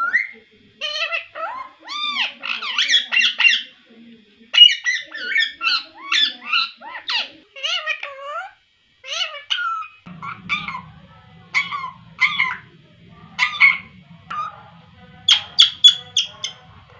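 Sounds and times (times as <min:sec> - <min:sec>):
parakeet chattering: 0:09.1 - 0:16.9.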